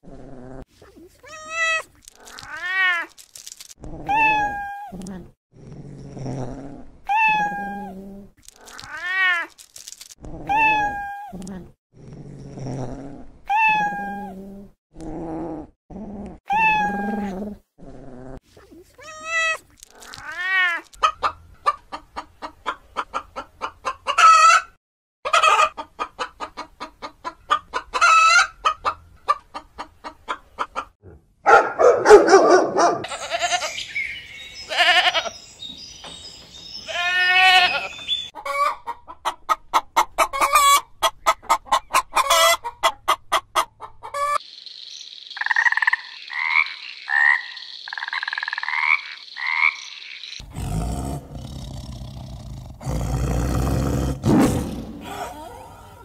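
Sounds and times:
cat meowing: 1.2 - 3.1, 7.1 - 7.9, 10.5 - 11.3, 13.5 - 14.3, 16.5 - 17.3
hen clucking and squawking: 20.9 - 24.7, 25.3 - 31.0, 36.9 - 44.5.

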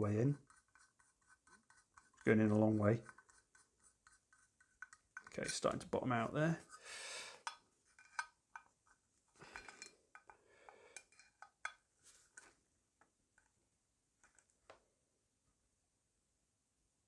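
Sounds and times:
screwdriver scraping metal: 0.3 - 5.7, 7.4 - 10.3.

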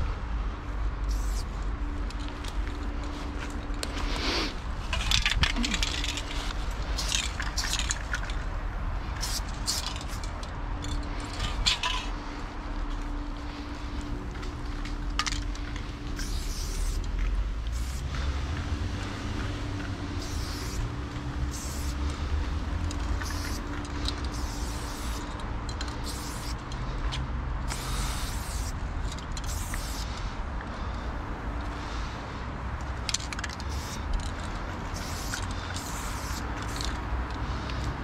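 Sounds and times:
spray paint can hissing: 1.0 - 1.6, 3.1 - 8.3, 9.1 - 10.3, 15.6 - 18.3, 19.0 - 26.7, 27.7 - 30.3, 33.1 - 37.8.

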